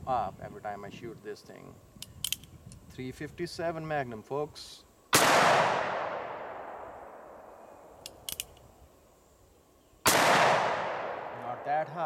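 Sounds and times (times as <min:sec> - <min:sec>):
revolver hammer cocking clicks: 0:02.0 - 0:02.8, 0:08.0 - 0:08.7
revolver gunshots with echo: 0:05.1 - 0:07.5, 0:10.0 - 0:11.8.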